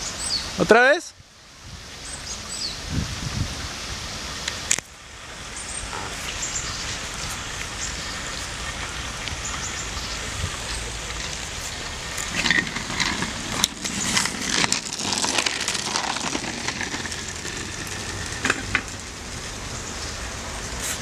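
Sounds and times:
scooter wheels crunching on gravel: 6.0 - 21.0.

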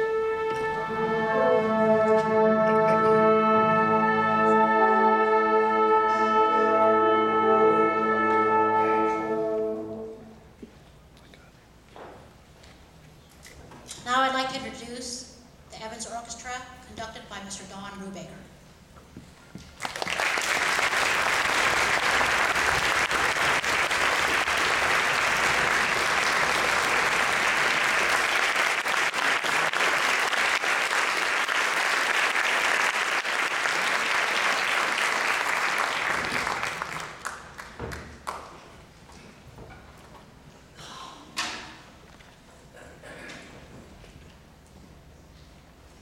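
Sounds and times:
audience applauding: 19.8 - 38.7.

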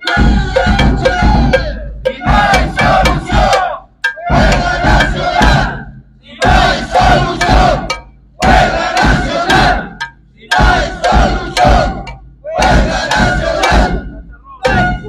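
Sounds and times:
crowd chanting slogans: 0.0 - 15.0.

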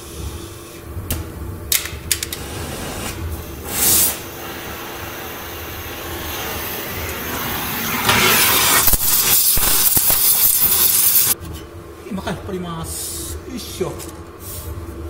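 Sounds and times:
gas torch hissing: 2.1 - 11.4.

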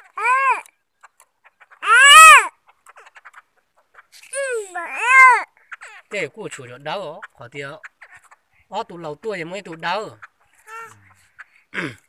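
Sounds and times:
crow cawing: 0.0 - 0.7, 1.8 - 2.6, 4.8 - 6.1.

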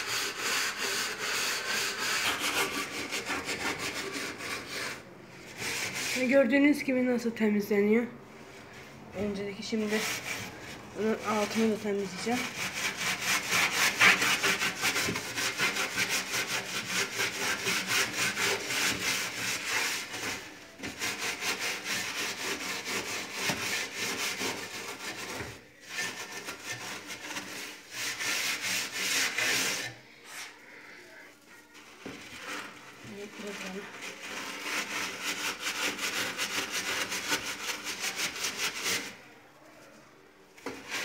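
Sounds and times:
hand scrubbing inside oven: 9.2 - 30.7.

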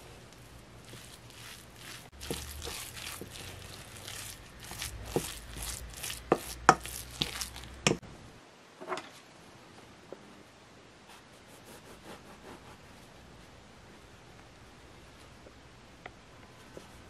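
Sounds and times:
spatula scraping metal bowl: 0.8 - 8.0
spatula knocking metal bowl: 5.1 - 8.0.

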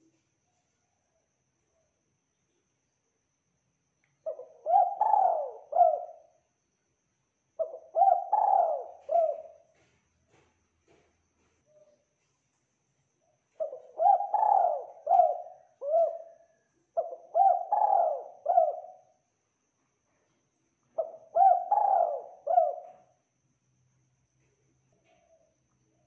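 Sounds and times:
dove cooing: 4.3 - 6.3, 7.6 - 9.8, 13.6 - 19.0, 21.0 - 23.1.

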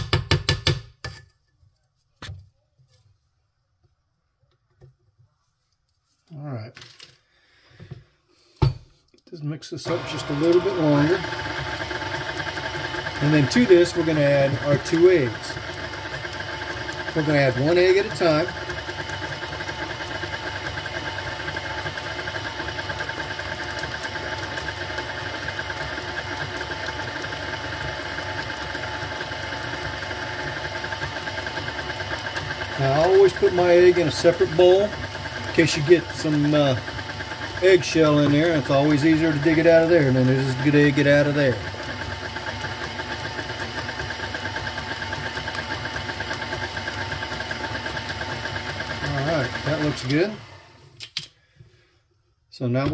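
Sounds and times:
stand mixer running: 9.7 - 51.0.

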